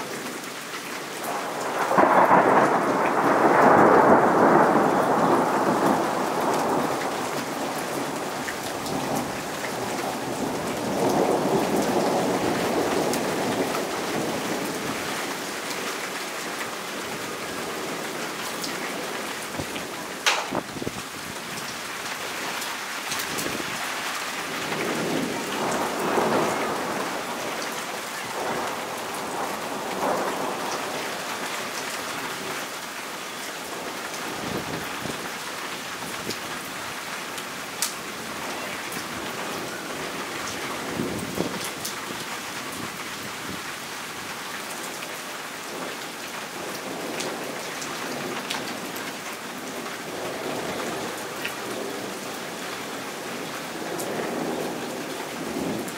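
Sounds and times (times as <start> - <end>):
heavy rain falling: 0.0 - 55.9
thunder rumbling: 1.3 - 15.2, 19.4 - 21.7, 23.3 - 32.6
sharp raindrop taps: 19.6 - 20.9, 37.4 - 38.0.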